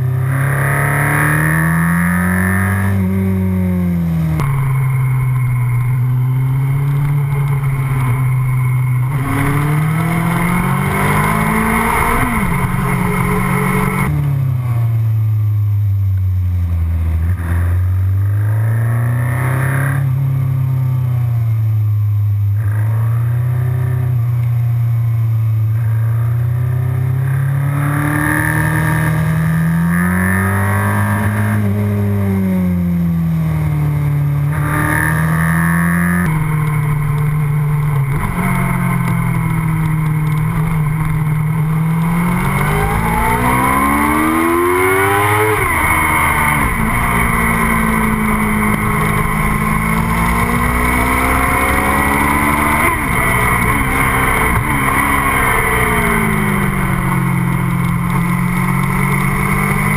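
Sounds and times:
motorcycle engine revving: 0:00.0 - 0:15.8, 0:16.6 - 0:59.9.

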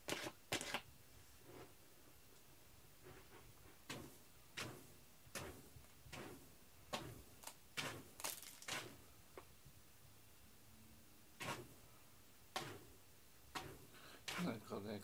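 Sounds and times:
cat scratching in litter: 0:00.0 - 0:00.9, 0:03.0 - 0:09.0, 0:11.4 - 0:11.8.

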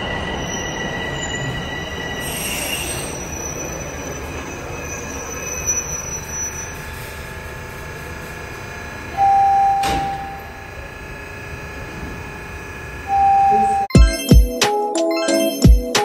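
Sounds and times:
subway train rumble and whine: 0:00.0 - 0:13.9
loud steady beep: 0:09.2 - 0:10.6, 0:13.1 - 0:14.4.

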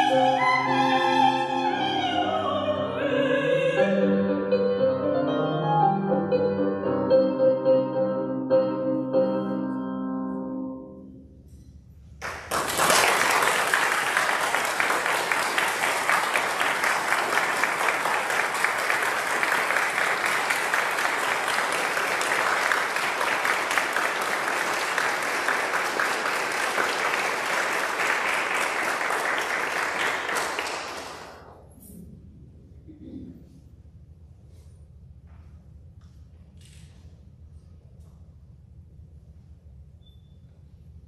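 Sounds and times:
keyboard chord: 0:03.8 - 0:11.2
audience applauding: 0:12.2 - 0:31.4.

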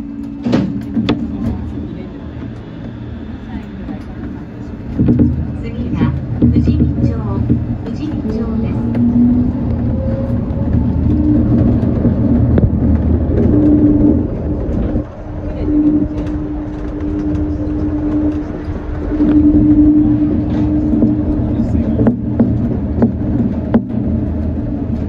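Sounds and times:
monorail car rumbling: 0:00.0 - 0:25.0
steady hum: 0:00.0 - 0:25.0.

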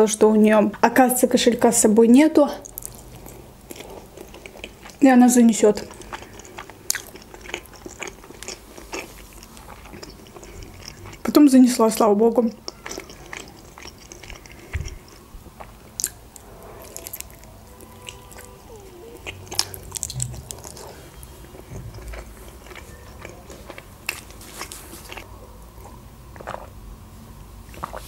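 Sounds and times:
wet chewing: 0:02.6 - 0:26.7, 0:27.7 - 0:28.0
lip smacks: 0:19.2 - 0:21.2.

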